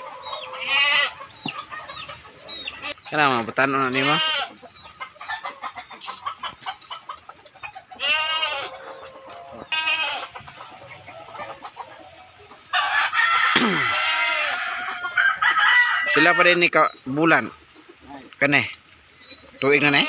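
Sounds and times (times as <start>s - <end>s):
chickens clucking: 0.0s - 20.0s
rooster crowing: 12.7s - 16.6s.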